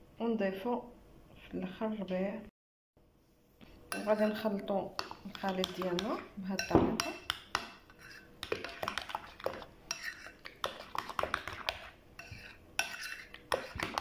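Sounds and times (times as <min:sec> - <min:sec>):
utensil stirring thick mixture: 0:03.9 - 0:14.0.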